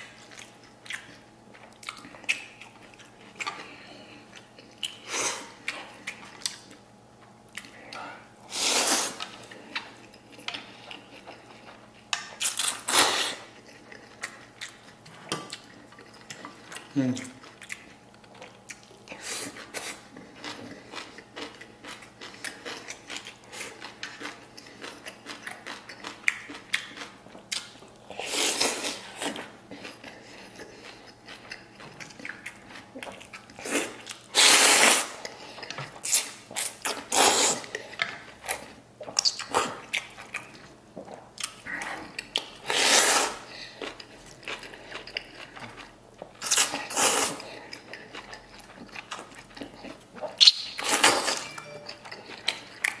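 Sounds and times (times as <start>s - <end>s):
wet chewing: 0.1s - 6.8s, 8.6s - 53.0s
slurping noodles: 8.5s - 9.2s, 33.7s - 35.2s, 36.1s - 37.7s, 42.6s - 43.4s, 46.4s - 47.5s.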